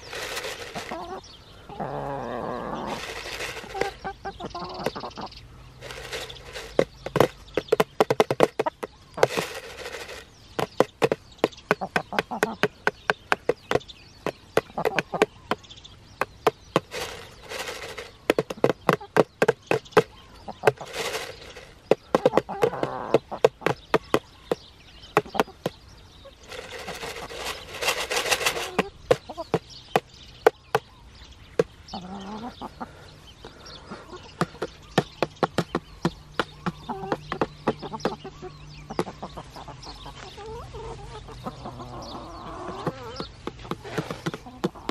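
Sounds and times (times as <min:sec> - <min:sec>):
hens clucking: 0:00.0 - 0:15.6, 0:16.2 - 0:30.9, 0:31.6 - 0:44.9
beaks tapping on plastic: 0:05.8 - 0:25.8, 0:34.4 - 0:38.2.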